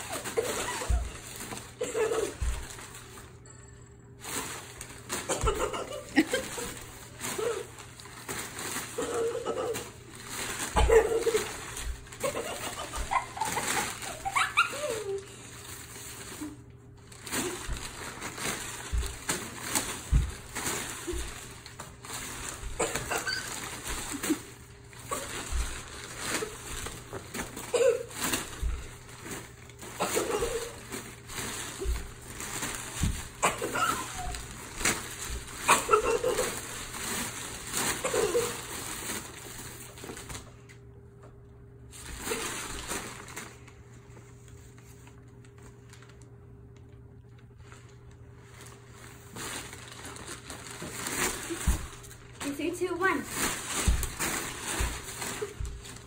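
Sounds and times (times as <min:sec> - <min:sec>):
paper bag crinkling and rustling: 0:00.0 - 0:03.4, 0:04.1 - 0:40.7, 0:41.9 - 0:56.0.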